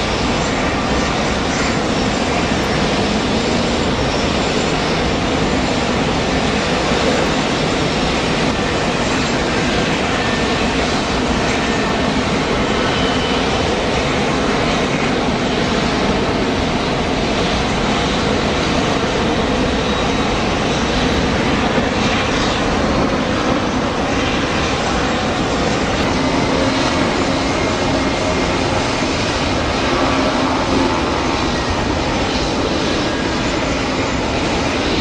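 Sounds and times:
jet engines roaring: 0.0 - 35.0.

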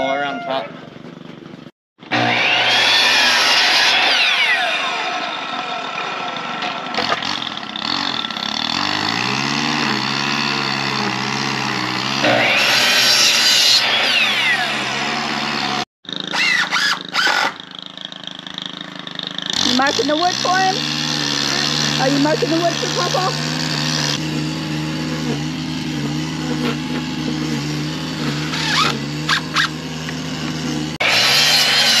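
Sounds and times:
miter saw cutting wood: 2.0 - 32.0.

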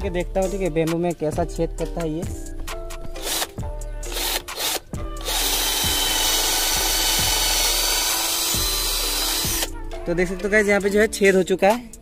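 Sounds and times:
background music with a beat: 0.0 - 12.0
cordless drill boring into wood: 3.2 - 9.7.

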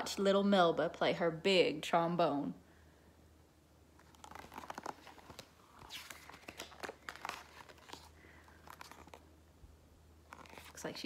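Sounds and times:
paper rustling and crinkling: 4.0 - 9.3, 10.2 - 11.0.

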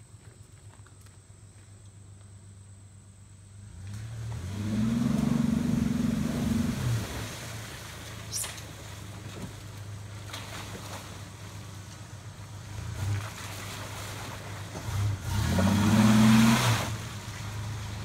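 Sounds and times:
pickup truck engine revving: 3.7 - 9.2, 12.5 - 18.0
tyres churning through mud: 3.7 - 18.0.

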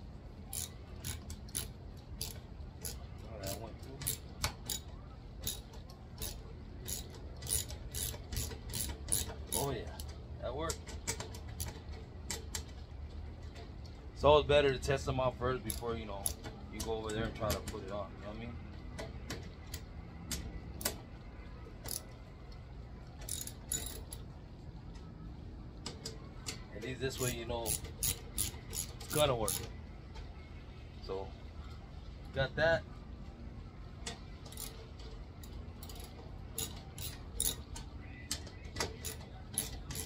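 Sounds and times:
low steady hum: 0.0 - 40.0
ratchet wrench clicking: 0.5 - 10.1, 10.7 - 12.8, 15.6 - 17.7, 21.8 - 22.2, 23.2 - 24.2, 27.1 - 29.7, 34.0 - 40.0
metal bolts clinking on metal plate: 23.2 - 24.2.

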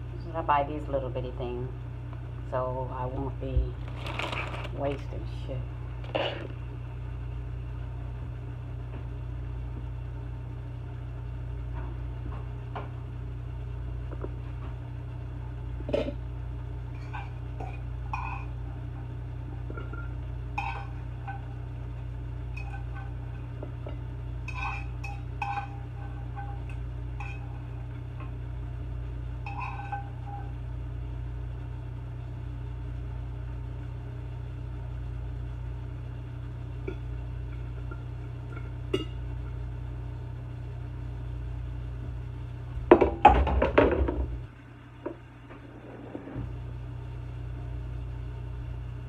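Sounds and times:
steady low hum: 0.0 - 49.0
utensil clinking against a skillet: 17.0 - 18.6, 19.7 - 21.6, 22.5 - 28.3, 29.5 - 30.5.

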